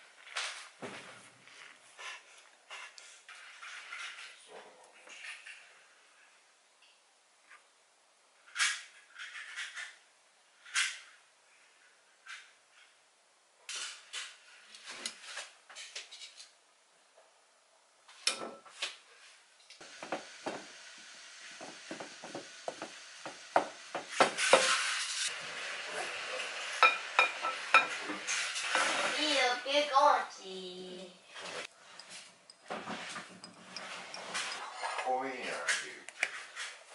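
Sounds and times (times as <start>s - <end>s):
utensils clinking against bowls: 31.8s - 35.1s.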